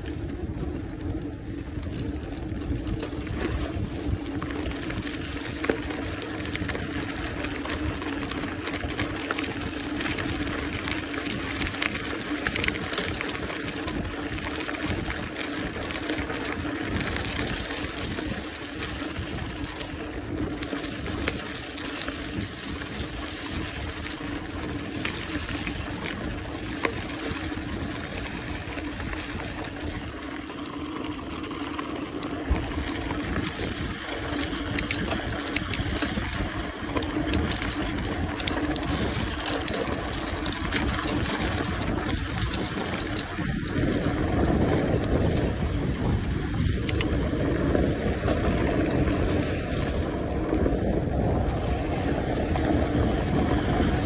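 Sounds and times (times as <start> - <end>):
wind on microphone: 0.0 - 30.4, 31.1 - 54.0
bike clicks and rattles: 0.0 - 54.0
bike tyres rolling: 0.0 - 54.0.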